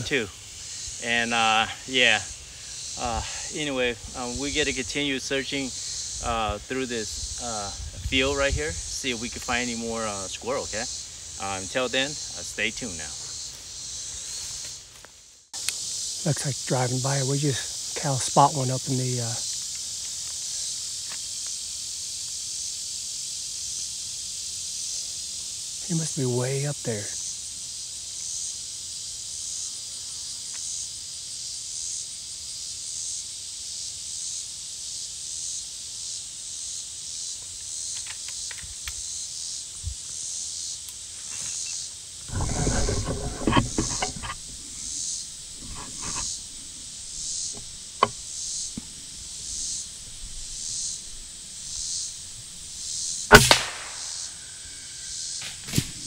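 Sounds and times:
insects droning: 0.0 - 56.0
rustling: 42.3 - 54.0
air rifle shot: 53.3 - 54.3.

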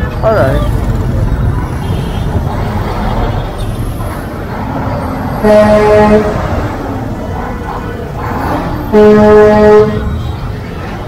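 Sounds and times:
motorcycle engines rumbling: 0.0 - 11.0
vehicle horn: 5.4 - 6.5, 8.9 - 10.6.

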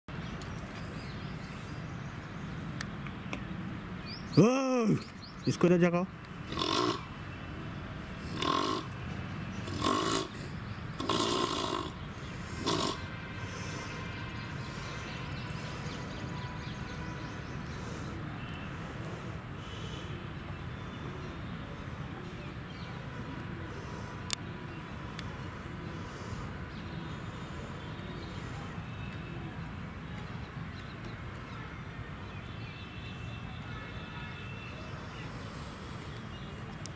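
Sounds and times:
steady background noise: 0.1 - 36.9
hyena harsh breathy calls: 9.6 - 13.9.

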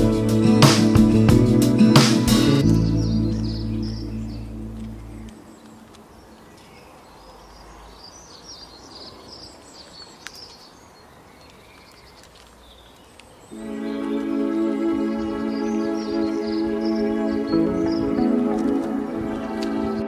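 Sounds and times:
background music: 0.0 - 5.3, 13.6 - 20.0
small birds chirping: 0.0 - 19.2.

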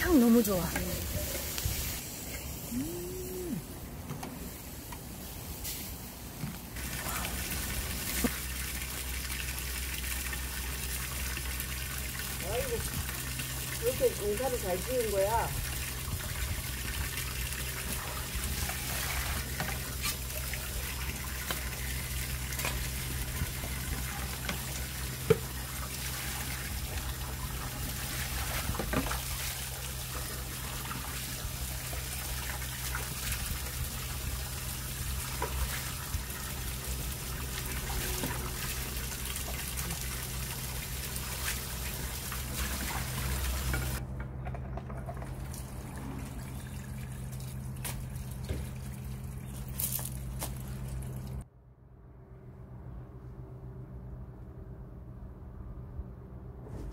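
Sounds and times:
water running from a tap: 6.8 - 44.0
water splashing in a basin: 6.8 - 44.0.

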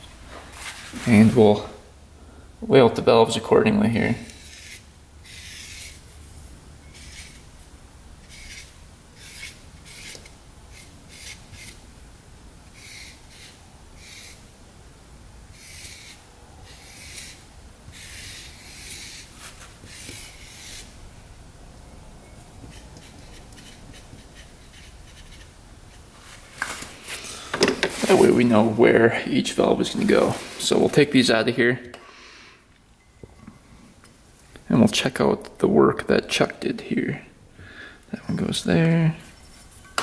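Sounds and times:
faint low hum: 0.0 - 32.0
pen scratching on paper: 4.4 - 6.0, 7.0 - 7.4, 8.3 - 11.8, 15.6 - 17.4, 18.0 - 19.3, 19.9 - 20.9, 22.7 - 26.0.

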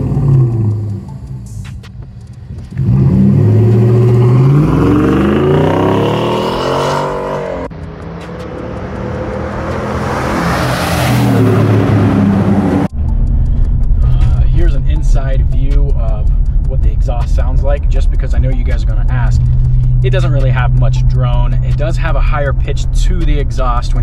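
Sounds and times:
truck engine revving: 0.0 - 14.4
truck passing at speed: 2.7 - 13.9.

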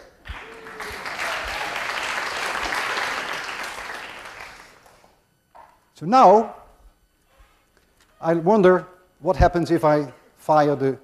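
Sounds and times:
audience clapping: 0.0 - 5.2.

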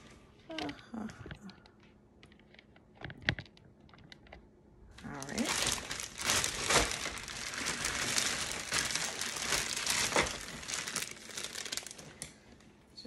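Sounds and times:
plastic packaging crinkling: 5.0 - 12.8.

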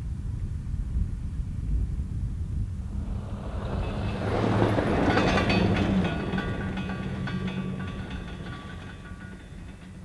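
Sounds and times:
truck driving past on dirt: 2.8 - 10.0.

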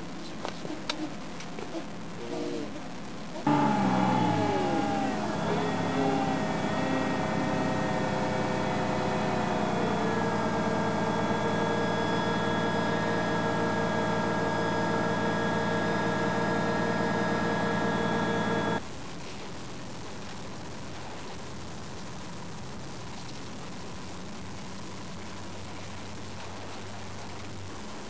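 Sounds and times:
diesel engine running: 3.5 - 18.8.

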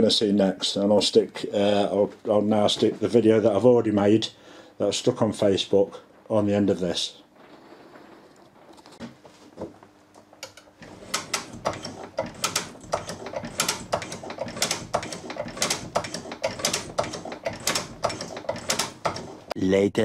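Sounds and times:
metallic clicks and rattles: 10.4 - 19.6.

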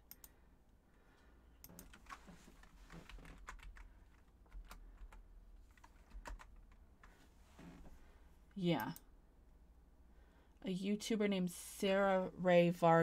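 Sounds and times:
typing on computer keyboard: 1.6 - 6.8.

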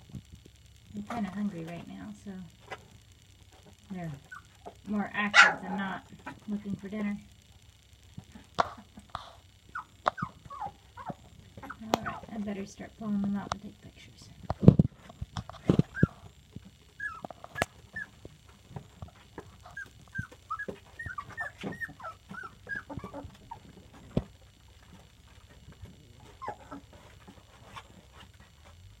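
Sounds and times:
puppies whimpering and squeaking: 9.7 - 12.4, 15.6 - 16.3, 16.9 - 18.3, 19.0 - 24.2, 26.2 - 27.9.

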